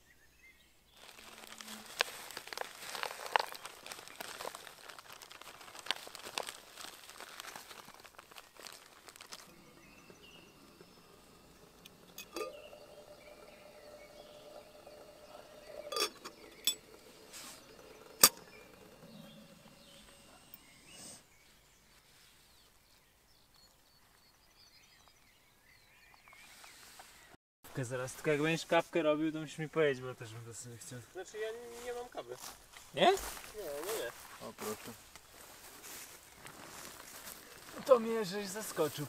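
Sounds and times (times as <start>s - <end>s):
dry food poured into plastic bowl: 1.0s - 9.5s
plastic food bag crinkling: 1.0s - 20.1s.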